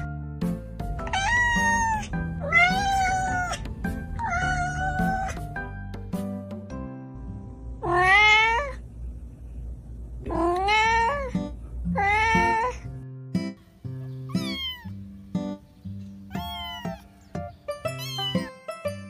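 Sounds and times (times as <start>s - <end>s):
background music with plucked beat: 0.0s - 7.0s
cat meowing: 1.0s - 5.4s, 7.8s - 8.8s, 10.3s - 12.9s, 14.2s - 15.0s, 16.3s - 18.6s.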